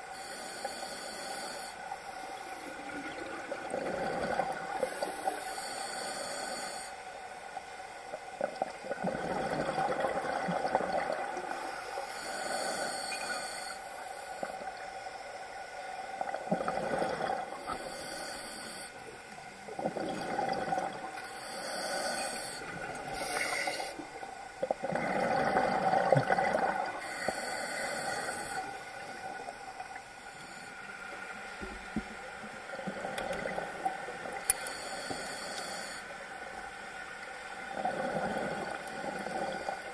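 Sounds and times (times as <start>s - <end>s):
regulator inhale hiss: 0.0s - 3.0s, 4.7s - 7.6s, 11.4s - 16.0s, 17.5s - 19.7s, 21.2s - 24.3s, 27.0s - 31.6s, 34.4s - 37.2s
exhaled air bubbling: 2.4s - 6.2s, 8.3s - 13.8s, 16.0s - 18.2s, 19.6s - 30.2s, 37.5s - 39.9s.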